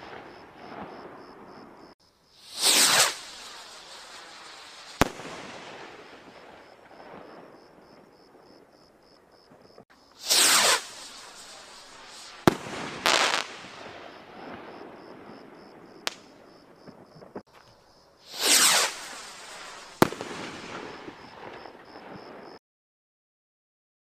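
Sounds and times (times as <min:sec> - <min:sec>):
firework rocket whoosh: 0:00.0 - 0:07.6, 0:10.2 - 0:15.4, 0:18.2 - 0:22.6
firework bang: 0:00.0 - 0:08.0, 0:10.2 - 0:17.5, 0:18.3 - 0:22.6
firework crackle: 0:00.0 - 0:08.3, 0:09.6 - 0:17.5, 0:18.2 - 0:22.6.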